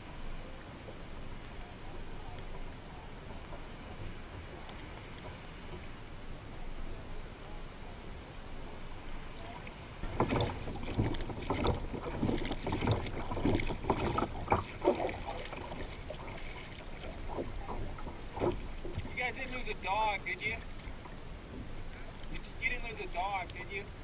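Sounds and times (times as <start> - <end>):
water splashing and knocking: 10.0 - 20.0.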